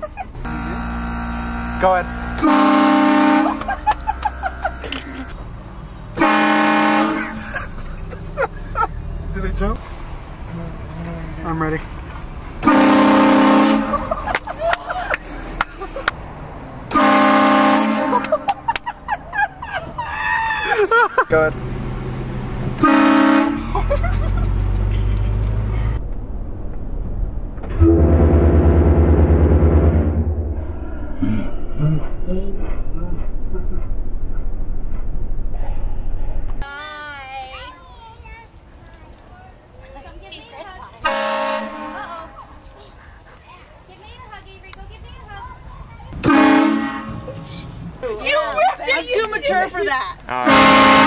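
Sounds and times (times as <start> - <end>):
car engine running: 0.0 - 6.4
train air horn blasting: 0.4 - 3.7, 6.2 - 7.4, 12.6 - 14.1, 16.9 - 18.4, 22.8 - 23.6, 27.8 - 30.4, 41.0 - 42.0, 46.2 - 47.3, 50.4 - 51.0.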